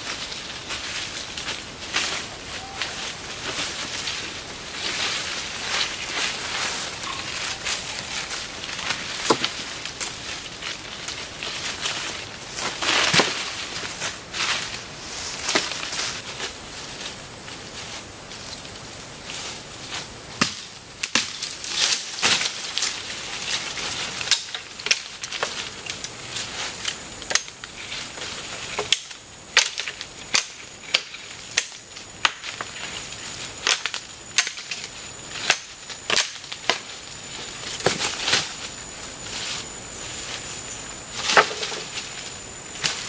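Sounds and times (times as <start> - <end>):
branches cracking and snapping: 0.1 - 14.8, 20.4 - 39.2.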